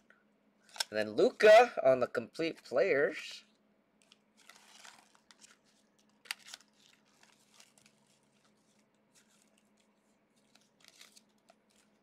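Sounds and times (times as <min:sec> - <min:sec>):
trading cards and wrappers rustling: 0:00.6 - 0:01.0, 0:04.0 - 0:12.0.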